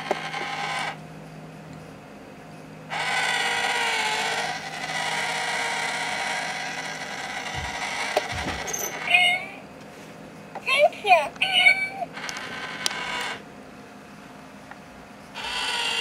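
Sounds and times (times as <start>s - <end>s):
small motor whirring: 0.0s - 1.0s, 2.9s - 9.2s, 12.1s - 13.4s, 15.4s - 16.0s
cat pawing at box: 7.6s - 8.7s.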